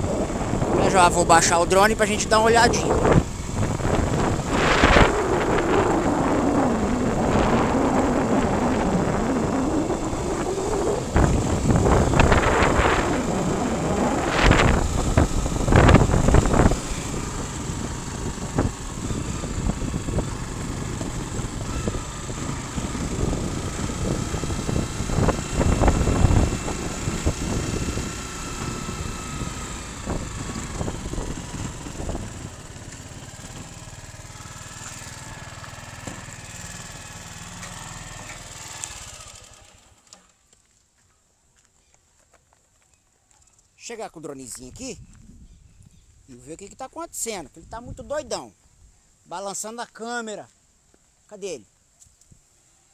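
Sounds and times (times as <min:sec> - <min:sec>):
wind buffeting microphone: 0:00.0 - 0:39.4, 0:44.6 - 0:46.3
motorcycle engine: 0:00.0 - 0:40.6.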